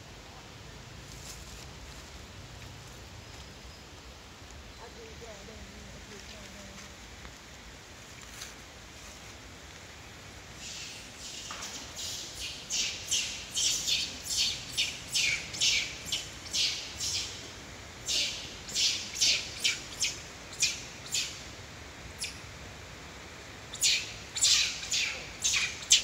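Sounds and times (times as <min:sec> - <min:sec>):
short high harsh chirping calls: 0:10.6 - 0:17.4, 0:23.7 - 0:26.0.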